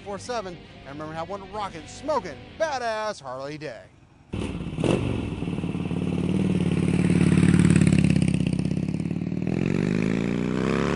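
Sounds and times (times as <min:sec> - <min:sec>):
motorcycle engine revving: 0:04.3 - 0:10.9.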